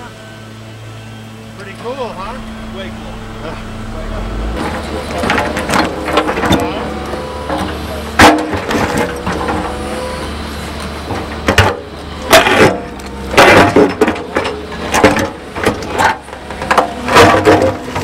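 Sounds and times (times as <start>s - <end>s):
excavator engine running: 0.0s - 18.0s.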